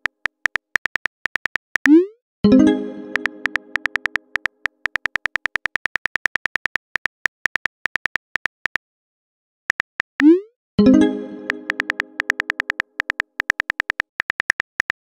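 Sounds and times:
phone keyboard tapping clicks: 0:00.0 - 0:02.0, 0:03.1 - 0:08.8, 0:09.7 - 0:10.3, 0:11.4 - 0:15.0.

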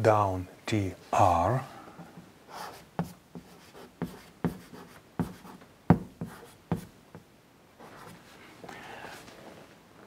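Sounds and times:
chalk scratching: 0:02.5 - 0:06.9
chalk tapping on blackboard: 0:02.5 - 0:07.3.

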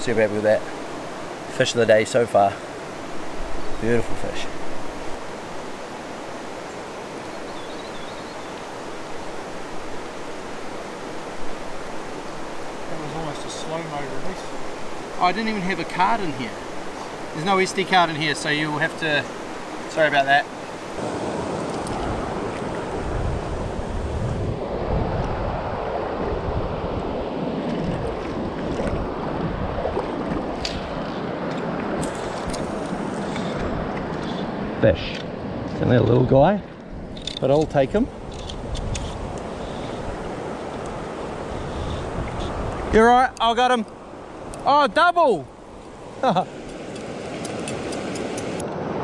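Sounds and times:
river water rushing over stones: 0:00.0 - 0:23.9, 0:25.4 - 0:35.6, 0:38.1 - 0:49.0
wind buffeting microphone: 0:20.5 - 0:44.7.

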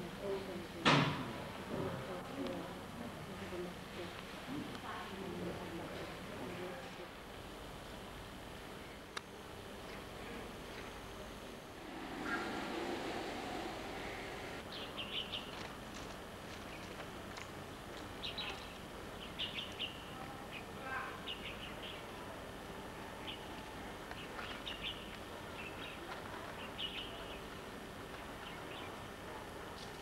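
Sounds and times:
steady background hiss: 0:00.0 - 0:30.0
small birds chirping: 0:11.8 - 0:15.6, 0:18.1 - 0:22.1, 0:24.1 - 0:29.0.

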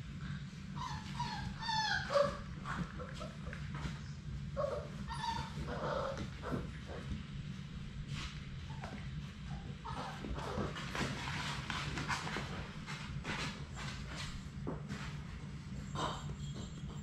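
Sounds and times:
puppies whining and yipping: 0:00.7 - 0:06.8, 0:08.6 - 0:11.0.

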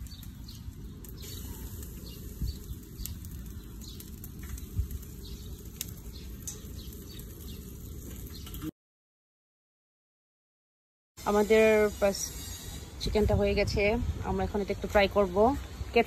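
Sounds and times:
faint bird chirps: 0:00.0 - 0:05.6.

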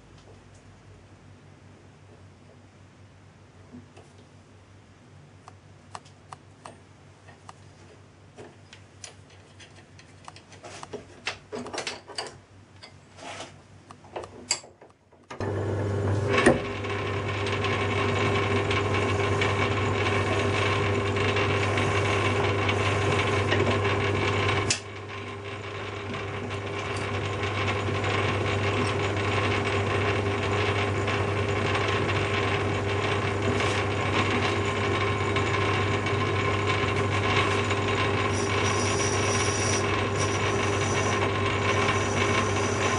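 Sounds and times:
metal lathe running: 0:15.4 - 0:42.9.

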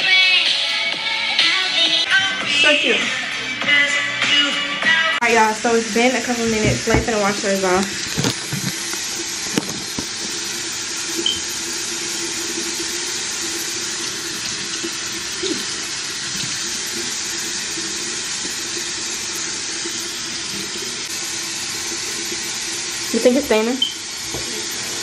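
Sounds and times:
tap running into sink: 0:06.3 - 0:10.5, 0:11.2 - 0:12.8, 0:21.8 - 0:25.0.

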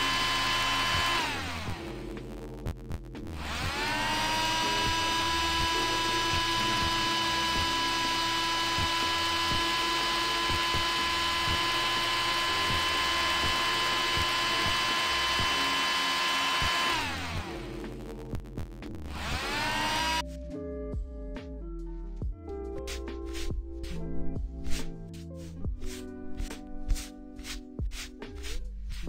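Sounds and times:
electric nail drill whining: 0:00.0 - 0:02.2, 0:03.3 - 0:18.0, 0:19.0 - 0:20.2.

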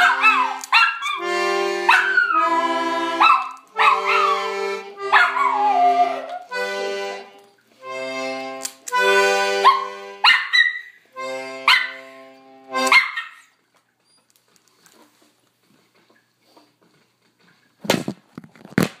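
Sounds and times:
dog howling: 0:00.0 - 0:01.2, 0:03.2 - 0:04.5, 0:05.1 - 0:06.5
accordion chords: 0:01.2 - 0:10.3, 0:11.0 - 0:13.0.

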